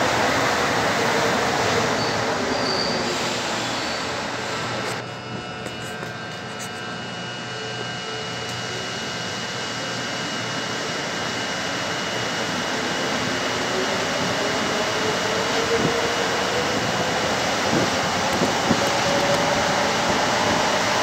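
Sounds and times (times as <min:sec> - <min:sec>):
train running rumble: 0:10.4 - 0:21.0.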